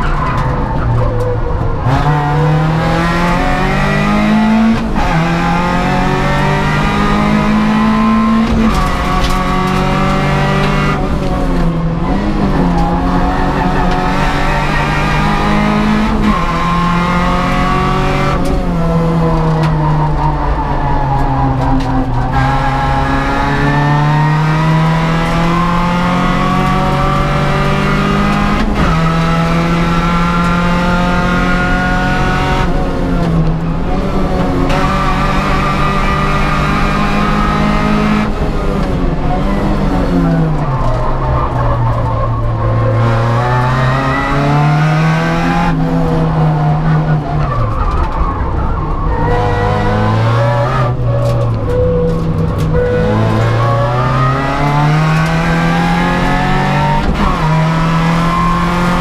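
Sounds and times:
car braking and downshifting: 0:00.0 - 0:59.0
race car engine accelerating: 0:00.0 - 0:59.0.

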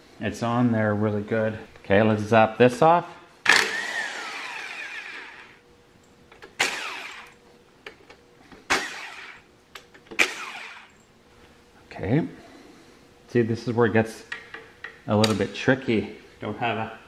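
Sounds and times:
impact wrench bursts: 0:03.5 - 0:05.6, 0:06.6 - 0:07.4, 0:08.7 - 0:09.4, 0:10.2 - 0:11.0.

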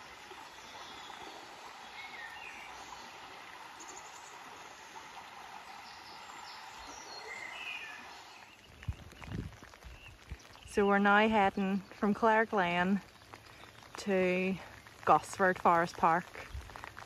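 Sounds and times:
bird calls: 0:00.4 - 0:10.9.

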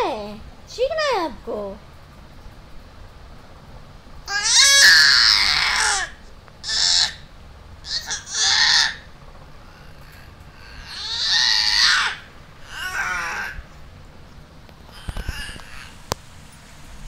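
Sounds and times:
baby shrieking: 0:04.3 - 0:09.1, 0:09.7 - 0:13.7, 0:14.9 - 0:16.0.

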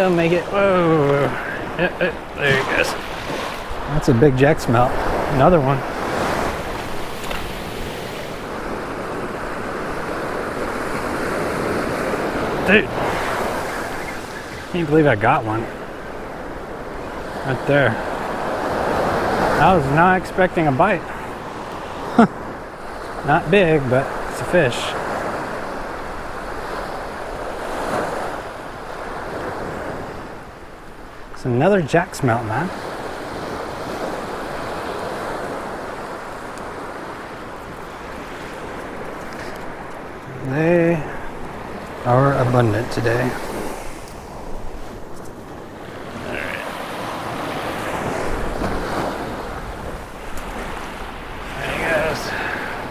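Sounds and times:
wind buffeting microphone: 0:00.0 - 0:19.9
ocean surf breaking: 0:00.0 - 0:52.9.

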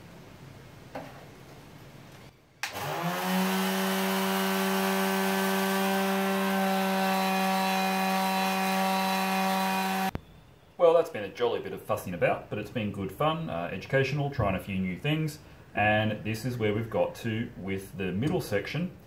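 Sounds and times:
electric sander motor running: 0:02.6 - 0:10.1.

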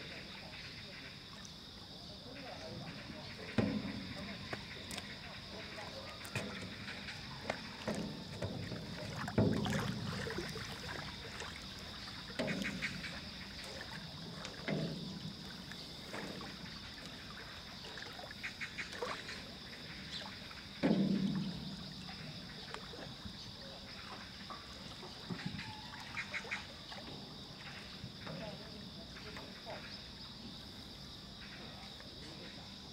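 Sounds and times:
footsteps thumping in metal boat: 0:02.7 - 0:17.7, 0:20.6 - 0:23.5.

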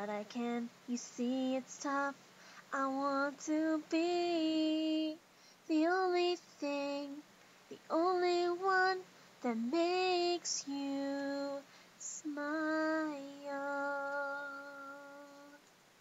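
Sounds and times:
girl singing unaccompanied: 0:00.0 - 0:15.7.

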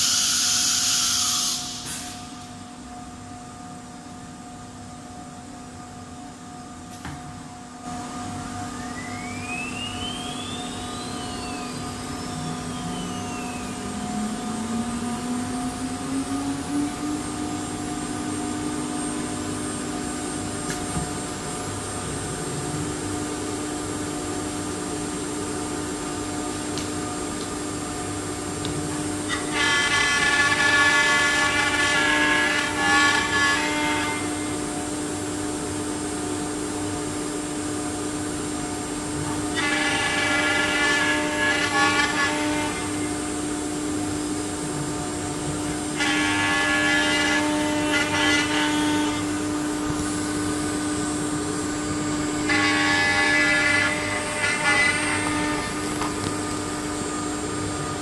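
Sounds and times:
router spindle whine: 0:08.3 - 0:22.4, 0:29.2 - 0:34.7
router bit cutting wood: 0:29.3 - 0:34.2.

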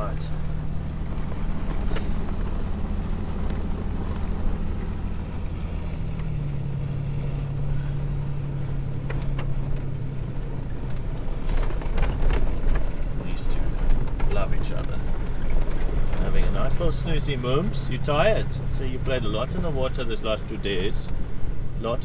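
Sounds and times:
car engine hum: 0:00.0 - 0:22.0
tyre and road noise: 0:00.0 - 0:22.0.

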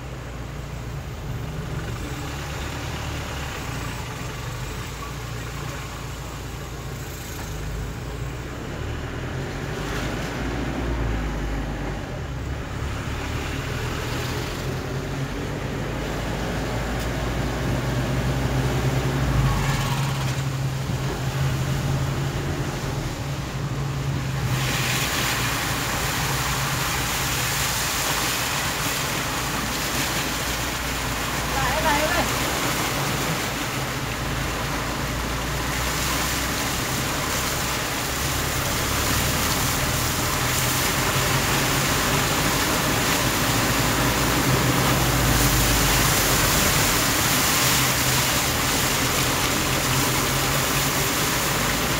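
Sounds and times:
vehicle engine humming: 0:00.0 - 0:51.9
water rushing hiss: 0:12.7 - 0:51.9.

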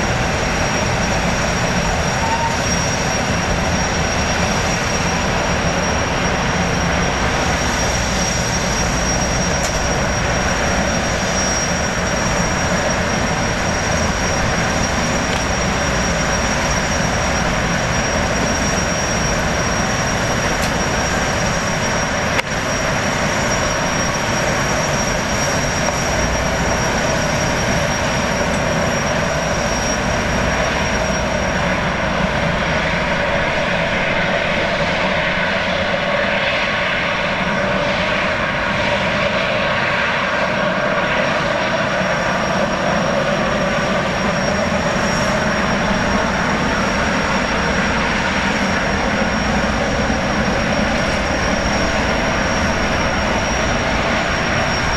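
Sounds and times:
gas turbines rushing: 0:00.0 - 0:54.9
high-pitched whistle: 0:00.7 - 0:31.6.

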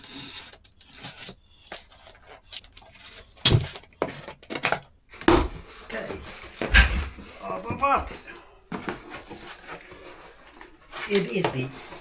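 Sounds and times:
box cutter slicing tape: 0:00.0 - 0:02.1.

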